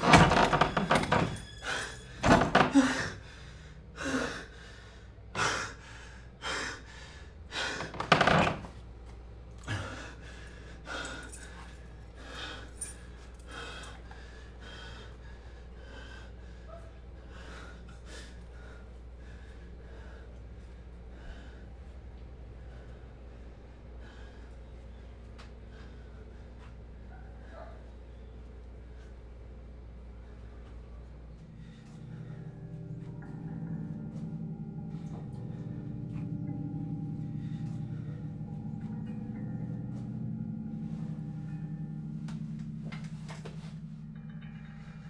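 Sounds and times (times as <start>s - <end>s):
man breathing hard: 1.6s - 8.0s, 9.6s - 28.0s, 31.3s - 40.2s.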